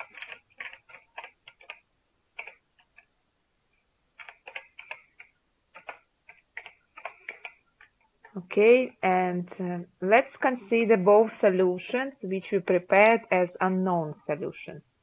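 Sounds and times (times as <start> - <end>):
computer keyboard keys clicking: 0.0 - 1.8, 2.4 - 3.1, 4.2 - 7.6.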